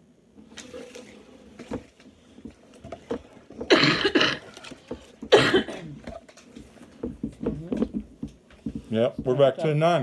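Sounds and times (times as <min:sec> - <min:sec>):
faint clicks and rustles: 0:00.4 - 0:09.6
person coughing: 0:03.7 - 0:04.6, 0:05.3 - 0:06.0.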